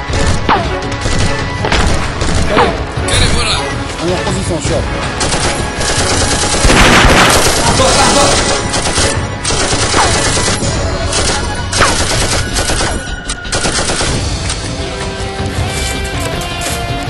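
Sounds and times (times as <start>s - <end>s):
background music: 0.0s - 17.0s
rapid gunfire: 0.1s - 2.8s, 5.1s - 14.3s.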